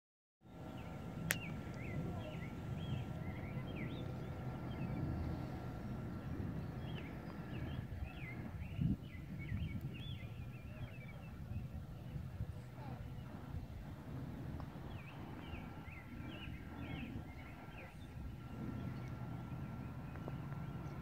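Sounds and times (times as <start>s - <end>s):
small birds chirping: 0.5s - 21.0s
steady low rumble: 0.5s - 21.0s
sharp click: 1.2s - 1.8s.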